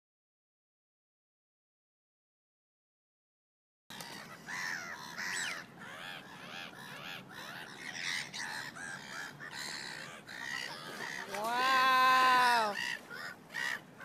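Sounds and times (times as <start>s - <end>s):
birds squawking and cawing: 3.9s - 14.0s.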